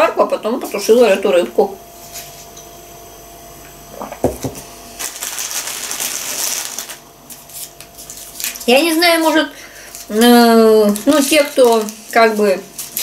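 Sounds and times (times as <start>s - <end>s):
plastic sweet wrappers crinkling: 5.0s - 13.0s.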